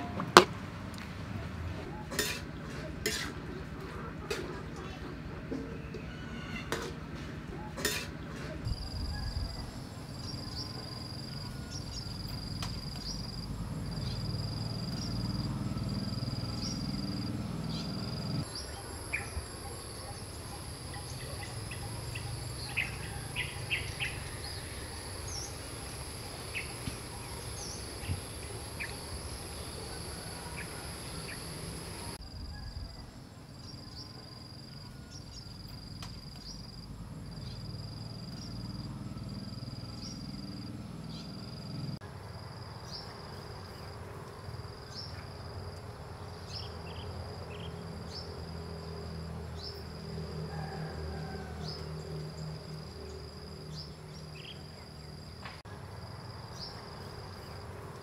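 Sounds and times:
high insect whine: 8.7 - 33.0
insects chirping: 8.7 - 58.0.

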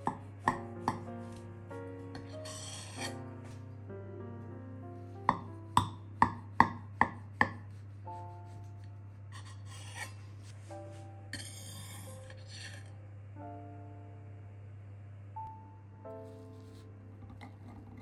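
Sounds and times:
knife chopping on a board: 0.0 - 1.1, 5.3 - 7.7
soft background music: 0.0 - 18.0.

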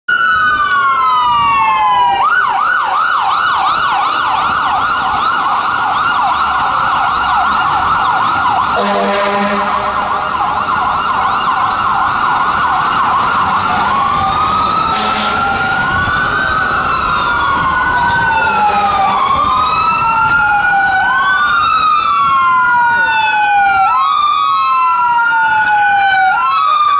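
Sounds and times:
fire truck siren wailing and yelping: 0.1 - 26.9
second siren: 0.1 - 26.9
fire truck horn blast: 8.8 - 10.3, 14.9 - 16.0.

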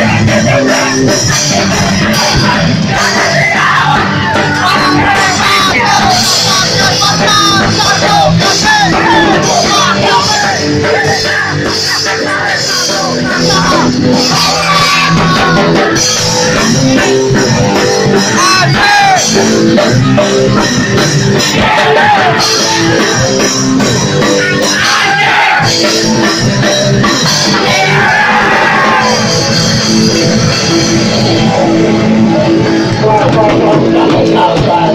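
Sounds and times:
shouted vocals: 0.0 - 16.0, 18.3 - 19.6, 21.3 - 23.2, 24.2 - 26.4, 27.4 - 29.6
drums: 0.0 - 34.9
electric guitar: 0.0 - 34.9
punk rock band playing: 0.0 - 34.9.

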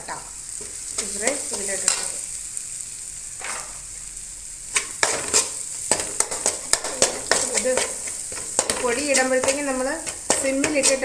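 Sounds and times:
masala sizzling in a pan: 0.0 - 11.0
spoon scraping and knocking pan: 0.6 - 2.2, 3.4 - 3.9, 4.7 - 11.0.

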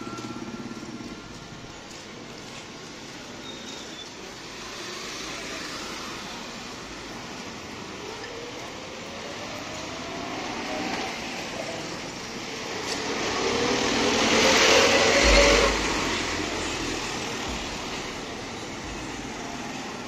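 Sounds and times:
background traffic: 0.0 - 20.0
motor vehicle passing: 13.0 - 19.6.

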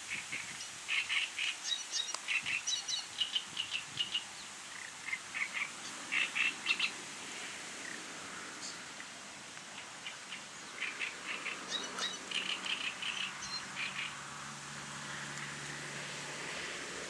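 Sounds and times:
songbird chattering song: 0.0 - 7.0, 8.6 - 14.3
background hiss: 0.0 - 17.0.

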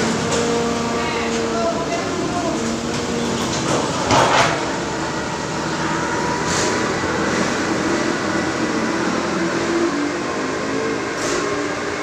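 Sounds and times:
forklift engines running: 0.0 - 12.0.

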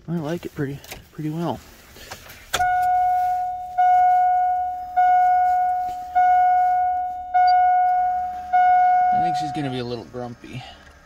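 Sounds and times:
dashboard warning chime dings: 2.6 - 10.0.

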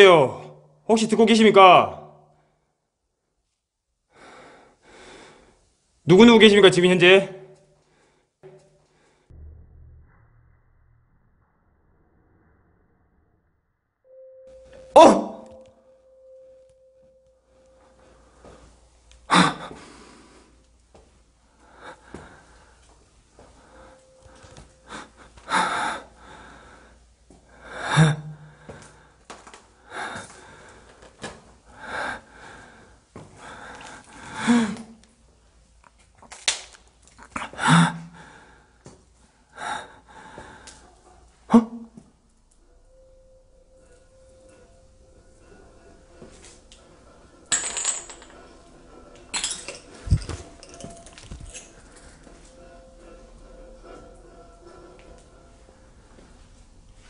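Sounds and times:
thin steady tone: 14.1 - 19.0
person gasping breaths: 19.3 - 20.6, 23.5 - 29.2, 29.8 - 35.0, 39.4 - 41.2.

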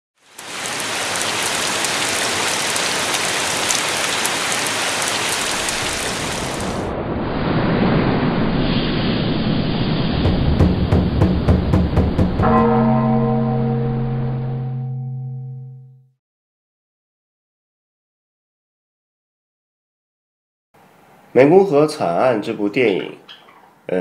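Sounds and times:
rain falling on a pond: 0.2 - 6.9
low rumble: 6.3 - 16.0.

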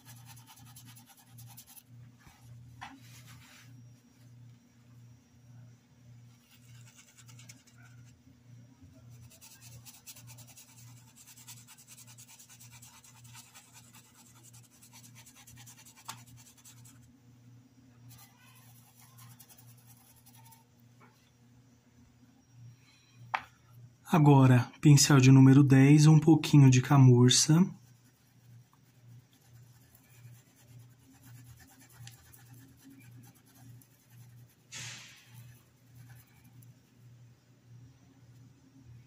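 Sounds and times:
paintbrush scrubbing cloth: 0.0 - 1.8, 9.1 - 17.0, 18.1 - 20.6, 27.4 - 36.6.

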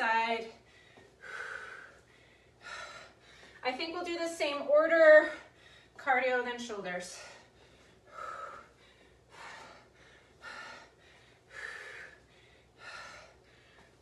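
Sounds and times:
woman breathing hard: 0.5 - 3.6, 5.2 - 6.0, 7.1 - 14.0.

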